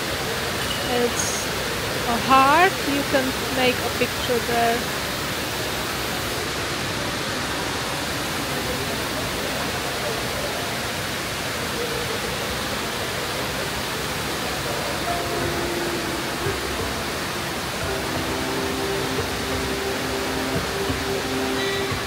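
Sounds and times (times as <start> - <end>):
waterfall rushing: 0.0 - 22.0.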